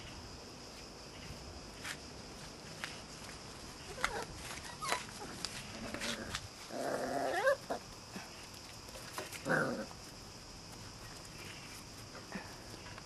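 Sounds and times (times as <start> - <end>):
puppies yelping: 3.9 - 5.4.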